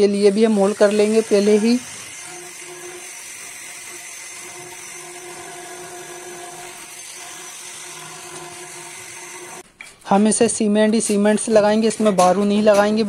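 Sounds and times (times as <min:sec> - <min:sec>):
high-speed electric power tool: 0:00.0 - 0:09.6.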